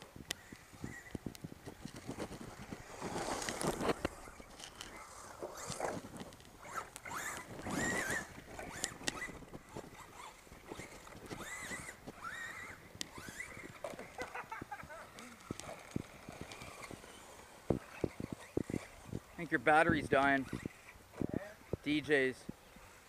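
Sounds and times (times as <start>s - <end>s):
toy truck motors whining: 0.3s - 21.8s
sharp clicks and ticks: 5.6s - 12.2s, 13.0s - 17.0s.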